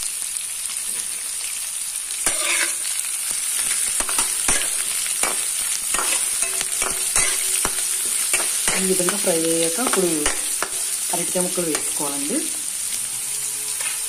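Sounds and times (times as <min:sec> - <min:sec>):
onions sizzling in hot oil: 0:00.0 - 0:14.0
spatula scraping a metal pan: 0:02.2 - 0:02.9, 0:03.6 - 0:09.2.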